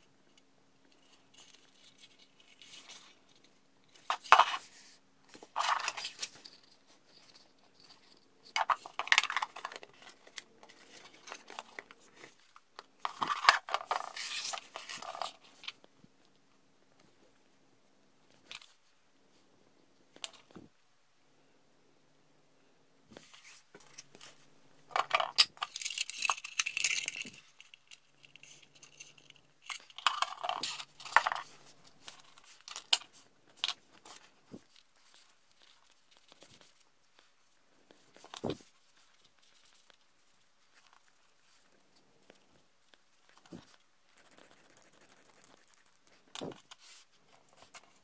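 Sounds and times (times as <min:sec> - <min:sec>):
plastic scraping and rubbing: 0:13.0 - 0:15.7
plastic parts clicking: 0:24.9 - 0:27.7.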